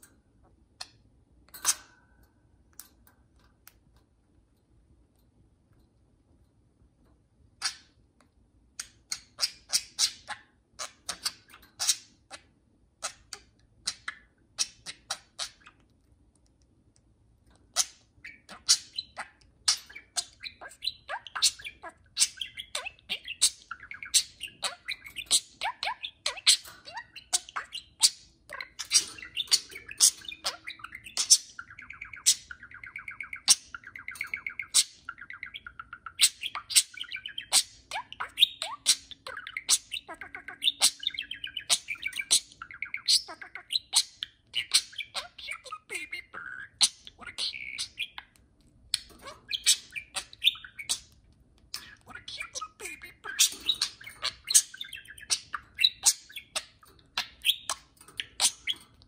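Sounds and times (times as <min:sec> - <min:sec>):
budgerigars chirping and chattering: 0:07.6 - 0:08.0, 0:08.7 - 0:16.4, 0:17.4 - 0:59.0.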